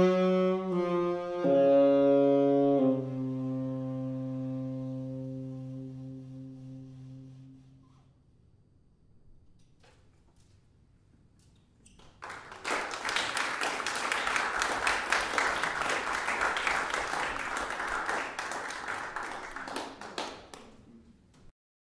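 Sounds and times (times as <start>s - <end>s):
audience applause: 12.2s - 20.7s.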